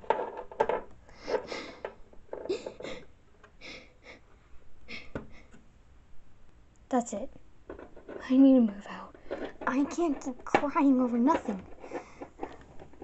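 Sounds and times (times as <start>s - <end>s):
person sobbing and sniffing: 1.2s - 4.3s, 4.9s - 5.6s.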